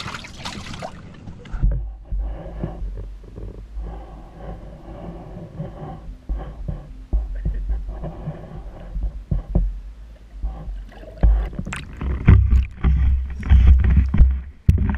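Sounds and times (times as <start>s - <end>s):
water sloshing: 0.0s - 2.0s, 10.1s - 14.9s
muffled knocks and clicks underwater: 1.3s - 14.9s.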